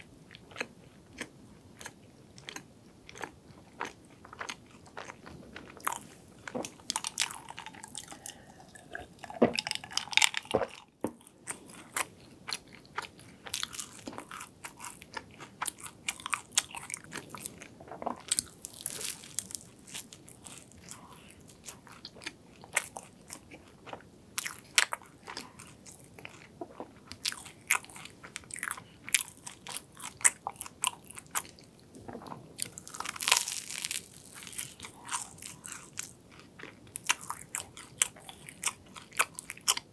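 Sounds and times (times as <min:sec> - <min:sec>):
pastry crunching while chewed: 0:00.3 - 0:39.9.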